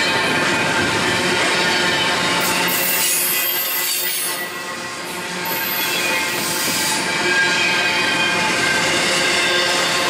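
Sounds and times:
train rumbling past: 0.0s - 10.0s
steel wheels squealing: 1.6s - 10.0s.

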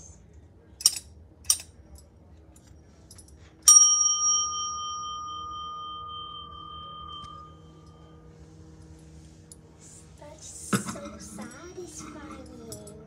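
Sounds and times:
desk bell ringing: 3.7s - 8.4s.

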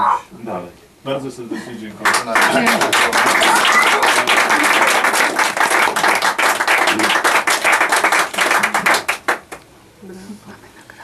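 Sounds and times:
audience applauding: 2.0s - 9.6s.

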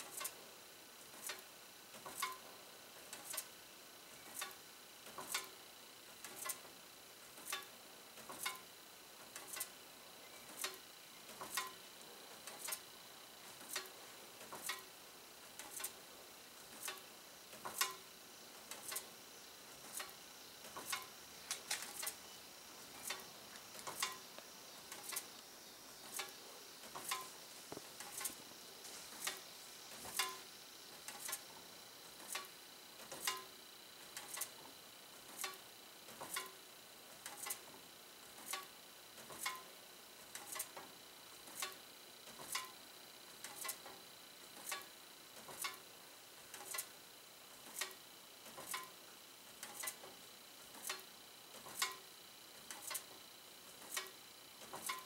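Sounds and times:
faint high whine: 0.0s - 37.1s
fan blades ticking on paper tag: 6.2s - 6.7s, 7.4s - 9.8s, 10.4s - 14.9s, 15.5s - 16.0s, 16.6s - 19.1s, 19.7s - 34.6s, 43.4s - 44.0s, 46.4s - 47.0s.

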